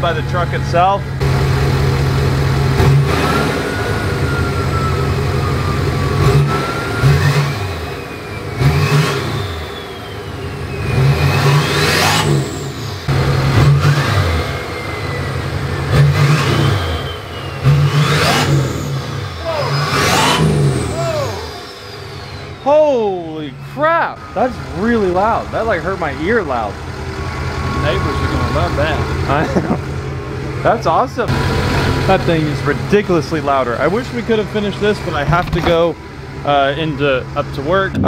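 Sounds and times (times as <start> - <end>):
diesel engine revving: 0.0 - 38.0
turbo whistle: 3.1 - 12.8, 13.7 - 26.4, 27.1 - 29.3.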